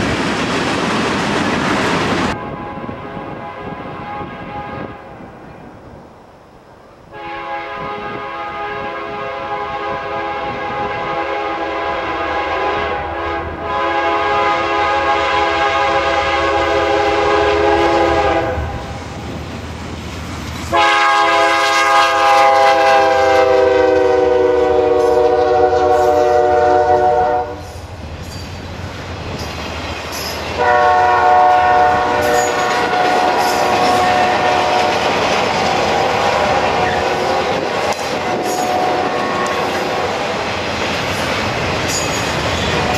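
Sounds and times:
low rumble of train: 0.0 - 42.9
locomotive air horn blowing: 2.3 - 5.2, 7.1 - 19.0, 20.7 - 27.7, 30.6 - 35.0, 36.0 - 40.1
wheels clacking over rail joints: 27.6 - 30.7, 32.2 - 42.9.

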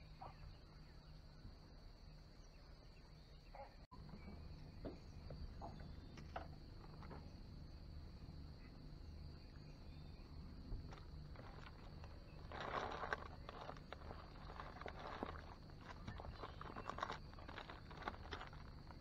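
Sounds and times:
high-pitched insect chorus: 4.5 - 19.0.

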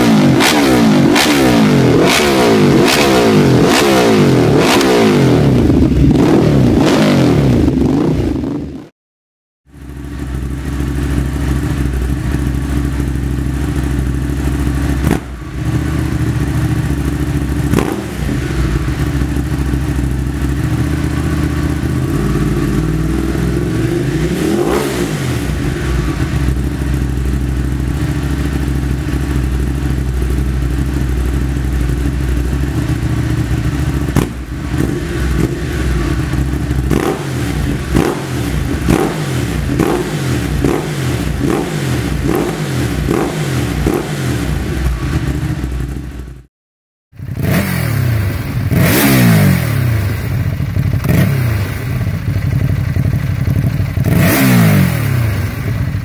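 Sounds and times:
motorcycle engine idling and revving: 0.0 - 9.0, 9.6 - 46.5, 47.1 - 56.0
motorcycle throttle blips: 9.8 - 46.3.

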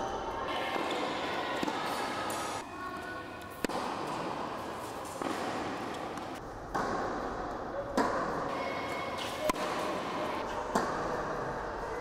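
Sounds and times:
indoor tennis hall noise: 0.0 - 12.0
racket striking tennis ball: 0.7 - 2.6, 3.5 - 11.3.

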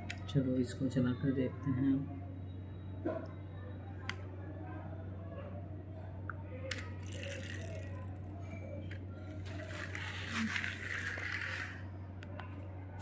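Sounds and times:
toy truck rolling on stone floor: 6.7 - 8.2, 8.9 - 11.9.

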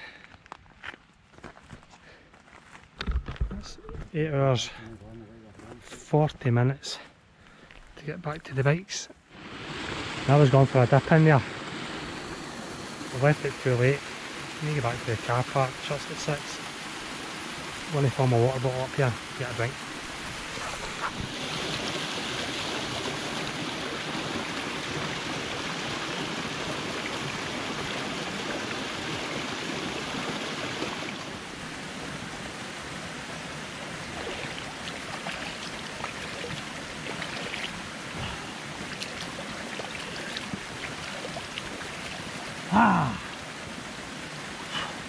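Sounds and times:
stream rushing over waterfall: 9.3 - 45.0
hand splashing water: 34.2 - 42.2.

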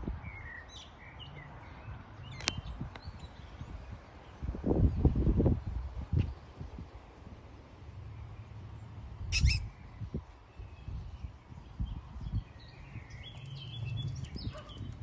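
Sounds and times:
wind rumble on microphone: 0.0 - 0.8, 1.8 - 15.0
small birds chirping: 8.0 - 15.0.

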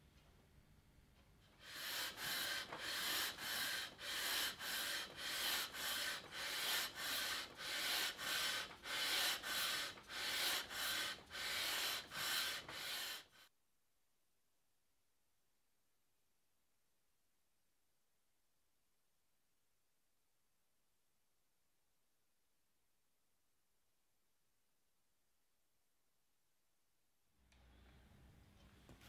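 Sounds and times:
sanding block rubbing wood: 1.6 - 13.4.

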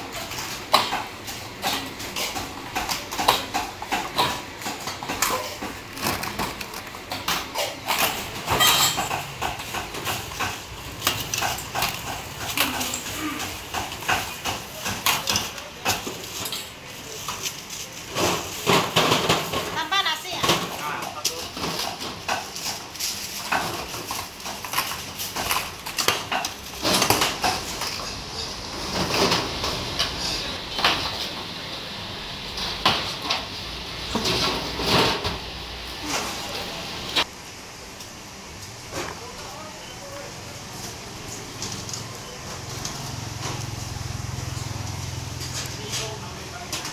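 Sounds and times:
metal cups and tongs clinking: 1.6 - 17.6.

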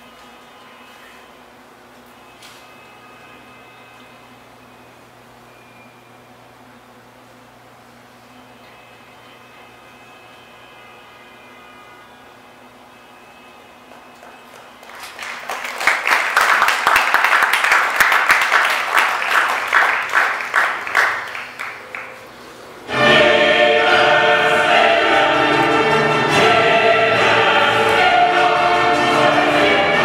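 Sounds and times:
rhythmic pulsing hiss: 0.0 - 15.0, 21.8 - 30.0
choral music with orchestra: 22.4 - 30.0.

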